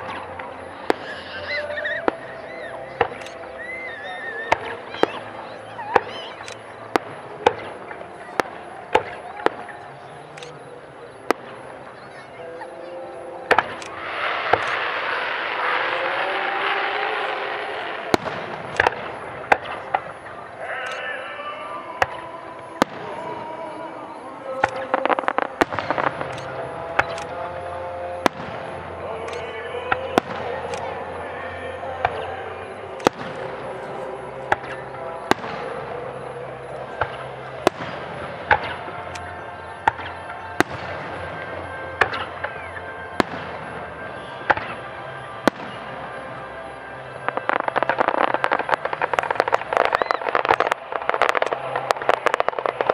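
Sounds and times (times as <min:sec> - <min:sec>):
fireworks bangs: 0:00.0 - 0:52.9.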